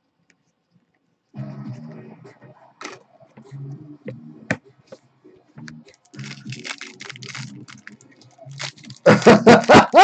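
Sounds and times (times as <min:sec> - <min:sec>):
tv broadcast murmur: 0:01.2 - 0:10.0
foil wrapper crinkling and tearing: 0:05.9 - 0:10.0.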